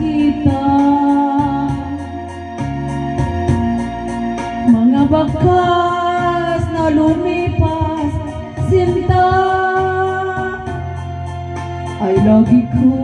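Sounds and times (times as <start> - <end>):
woman singing: 0.0 - 2.2, 4.6 - 10.8, 12.0 - 13.0
backing music with ticking beat: 0.0 - 13.0.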